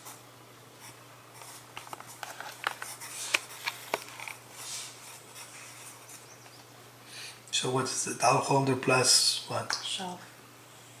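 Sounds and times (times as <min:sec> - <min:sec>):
pencil scratching on paper: 0:04.6 - 0:06.3.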